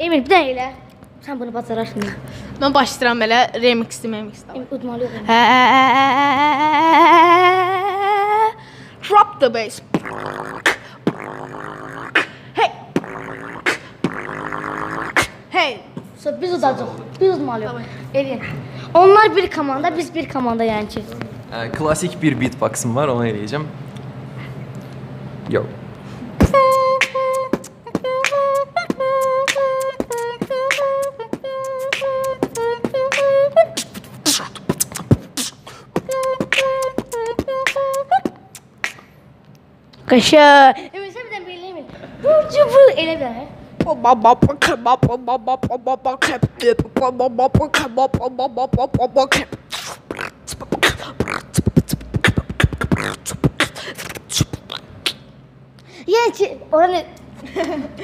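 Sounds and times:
boy humming a tune: 4.9 - 15.4, 26.4 - 39.2, 43.8 - 55.3
beatbox clicks and snare hits: 9.9 - 15.4, 26.4 - 39.2, 43.8 - 55.3.

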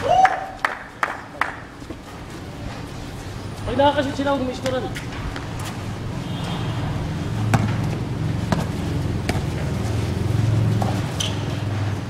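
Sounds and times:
basketball bouncing on court: 6.3 - 10.0.

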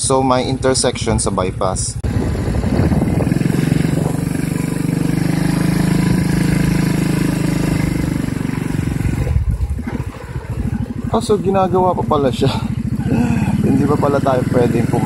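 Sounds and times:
vehicle engine pulling away: 2.0 - 15.0.

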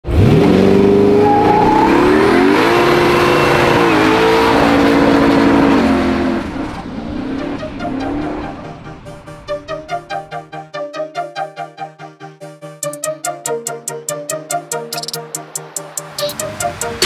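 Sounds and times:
car engine at high revs: 0.0 - 8.5.

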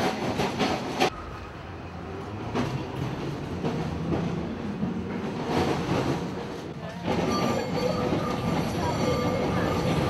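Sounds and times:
tram rumble and hum: 0.0 - 10.0.

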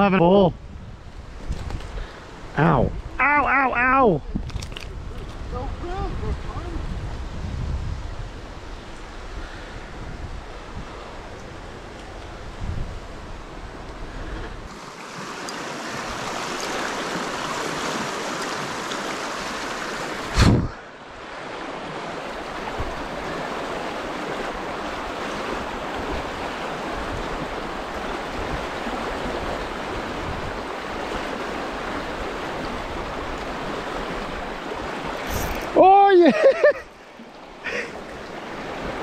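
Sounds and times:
water flowing over rocks: 14.6 - 39.0.

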